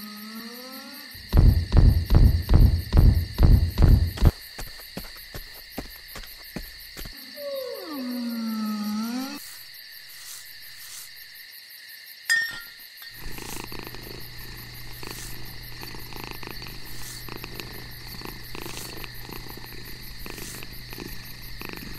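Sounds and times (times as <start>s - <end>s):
low purr-like rumble: 13.2s - 21.9s.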